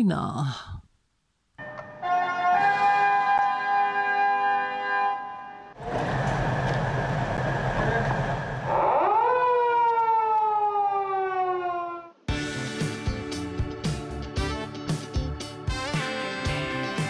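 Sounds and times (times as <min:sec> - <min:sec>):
motorcycle siren: 0:02.0 - 0:05.7, 0:08.6 - 0:12.2.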